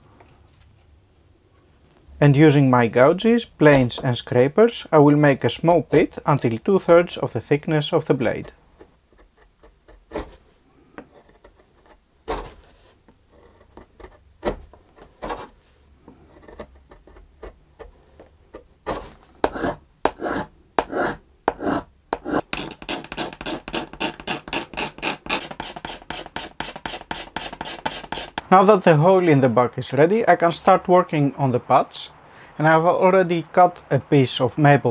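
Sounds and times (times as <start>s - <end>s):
gouge cutting wood shavings: 5.5s - 7.2s, 18.5s - 28.4s
short scraping strokes on wood: 18.5s - 28.4s.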